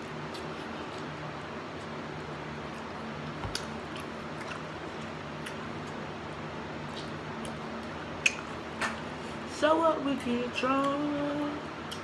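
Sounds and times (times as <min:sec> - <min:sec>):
steady low hum: 0:00.0 - 0:12.0
person chewing wet mouth sounds: 0:00.2 - 0:06.0.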